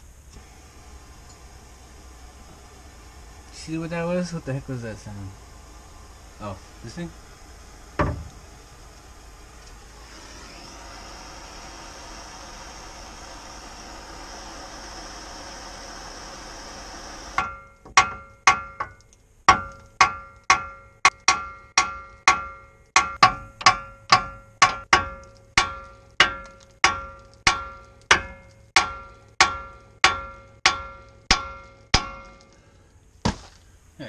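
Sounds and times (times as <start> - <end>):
hammer striking steel: 17.3 - 32.5.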